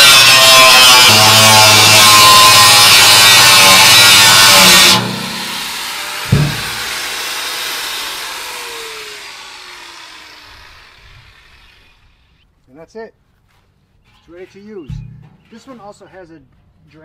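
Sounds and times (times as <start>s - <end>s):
angle grinder cutting steel: 0.0s - 12.3s
grinder motor winding down: 0.0s - 12.3s
sharp thump: 6.2s - 6.9s, 14.9s - 15.5s.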